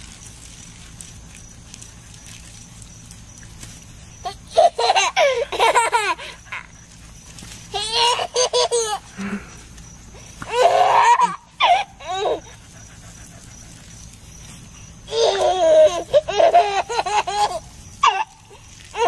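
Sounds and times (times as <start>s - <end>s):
toddler laughing: 4.2s - 6.7s, 7.7s - 9.2s, 10.4s - 12.6s, 15.1s - 18.4s.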